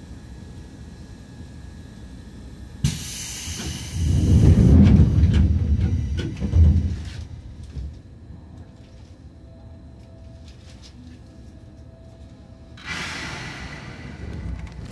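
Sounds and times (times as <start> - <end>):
thump and hissing rush: 2.8 - 7.2
electric train running: 2.8 - 8.0, 12.8 - 14.9.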